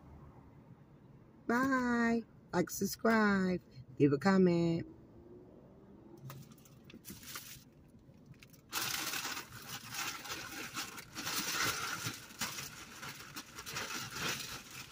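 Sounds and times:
rustling and crinkling handling: 0:06.3 - 0:14.9.

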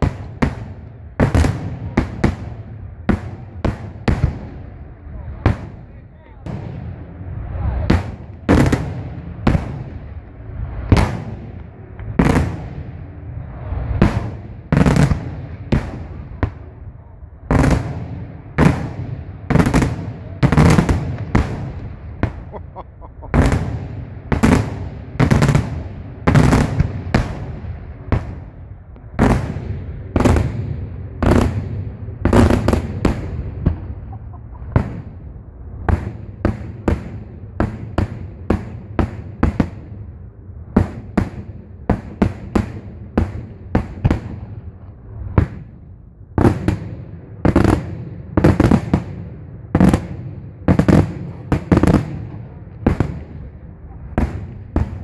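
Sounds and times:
fireworks exploding: 0:00.0 - 0:55.0.

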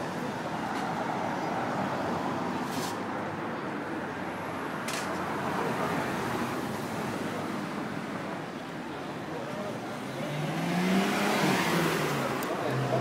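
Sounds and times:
cars driving slowly past: 0:03.2 - 0:13.0.

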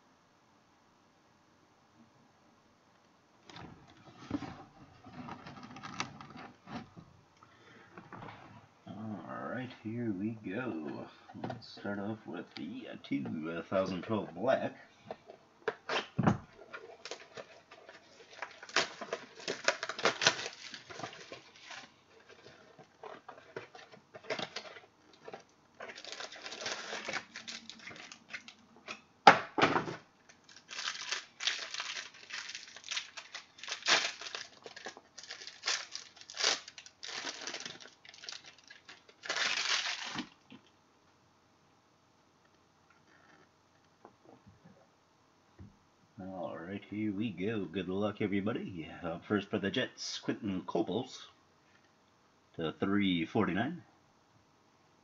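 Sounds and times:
plastic wrapping tearing and crinkling: 0:16.7 - 0:28.7, 0:30.3 - 0:40.4.

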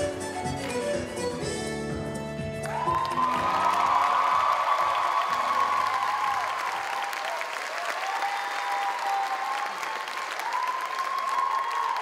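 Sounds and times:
audience applauding: 0:02.6 - 0:12.0
high cheers: 0:02.6 - 0:12.0.

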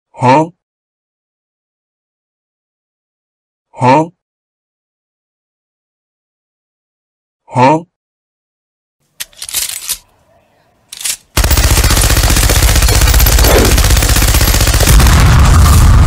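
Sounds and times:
machine gun firing: 0:11.3 - 0:16.0.

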